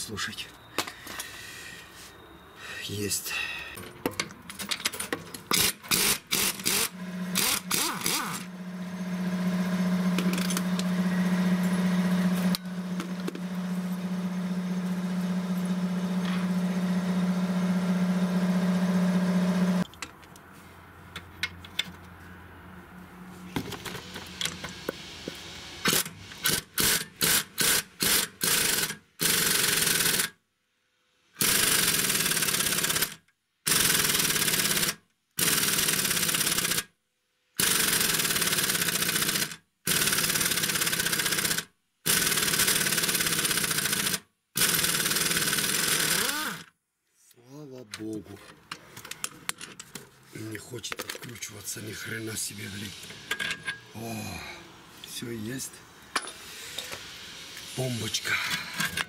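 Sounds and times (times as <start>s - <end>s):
pneumatic impact wrench bursts: 5.5s - 9.2s, 25.7s - 30.4s, 31.3s - 37.0s, 37.6s - 46.8s, 56.1s - 59.0s.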